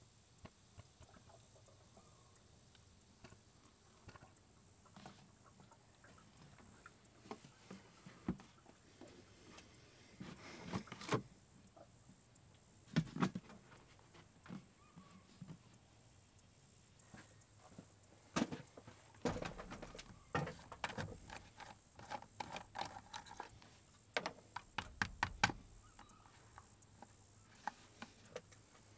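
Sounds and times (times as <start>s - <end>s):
plastic knocks: 24.2s - 25.6s.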